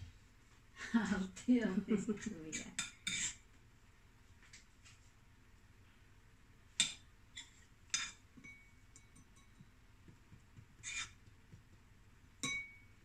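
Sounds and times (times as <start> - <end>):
spoon clinking against a dish: 2.7 - 3.4, 7.9 - 9.8, 12.4 - 13.0.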